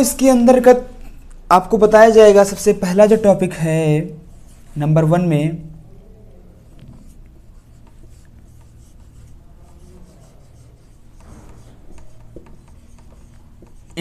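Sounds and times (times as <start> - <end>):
marker scratching on whiteboard: 1.6 - 5.3, 6.6 - 14.0.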